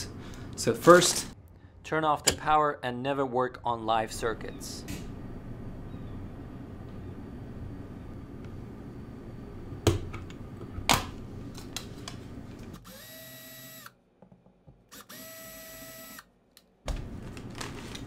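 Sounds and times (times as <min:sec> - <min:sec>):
cordless drill spinning: 0:12.8 - 0:13.9, 0:14.9 - 0:16.3.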